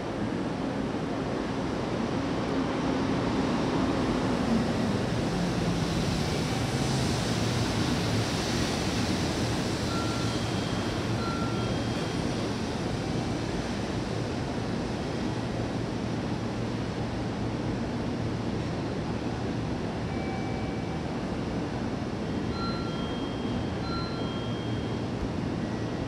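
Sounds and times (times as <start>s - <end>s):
freight train wheels rumbling on rails: 0.0s - 20.2s.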